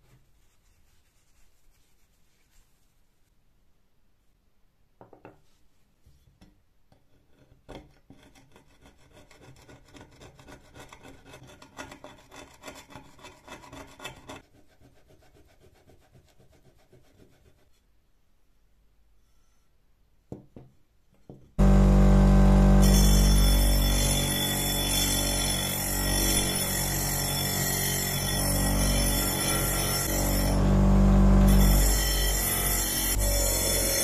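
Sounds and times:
soft rubbing: 0.0s - 3.4s.

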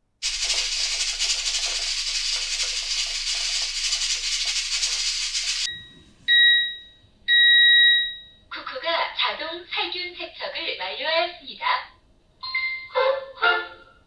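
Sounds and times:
rice cooker venting steam: 0.2s - 5.7s.

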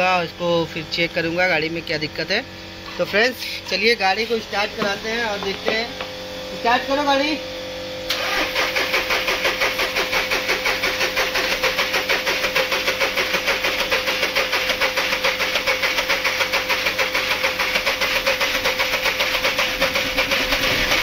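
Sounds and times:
car engine with rapid pulsing: 8.1s - 21.0s.

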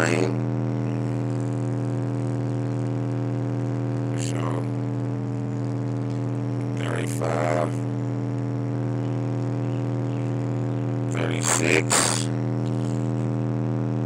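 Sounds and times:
low sine test tone: 0.0s - 14.0s.

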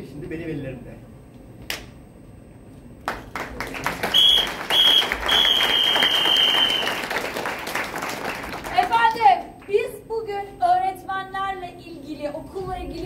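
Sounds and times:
audience applause: 3.1s - 9.1s
high steady whistle: 4.1s - 7.0s.

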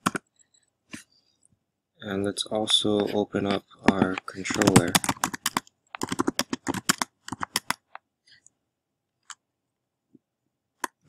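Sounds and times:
computer keyboard typing: 0.0s - 0.3s, 3.8s - 8.0s.

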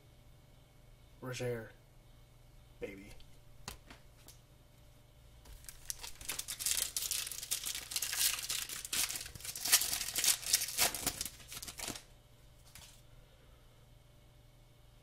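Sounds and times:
foil wrapper crinkling and tearing: 5.5s - 12.1s.

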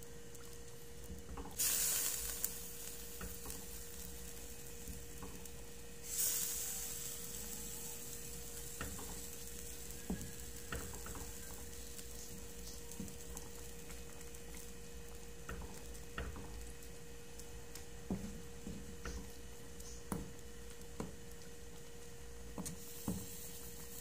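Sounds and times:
stew sizzling in a pot: 0.0s - 24.0s.

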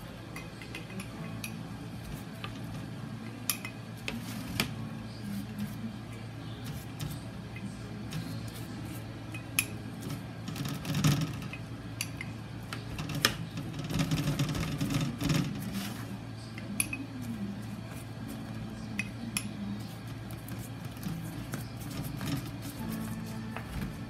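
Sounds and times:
soft brushing: 15.6s - 16.3s, 19.7s - 23.5s.

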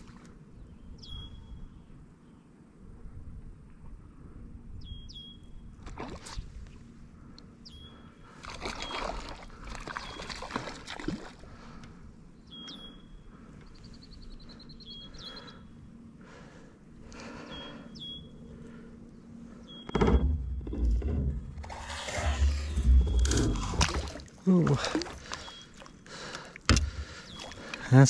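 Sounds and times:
fish splashing in water: 8.4s - 11.4s, 23.2s - 26.0s.

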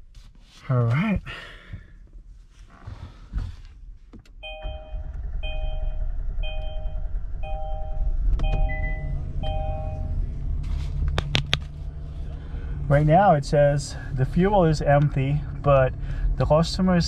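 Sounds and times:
two-tone dashboard warning chime: 4.4s - 10.2s
car engine running: 4.4s - 17.0s.

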